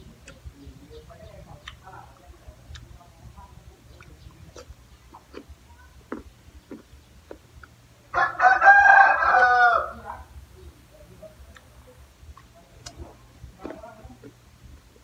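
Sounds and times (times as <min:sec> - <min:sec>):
rooster crowing: 0:08.1 - 0:10.1.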